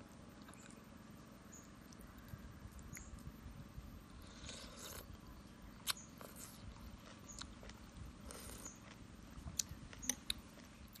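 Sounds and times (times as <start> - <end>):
person slurping and chewing: 4.2 - 5.1, 7.6 - 9.0.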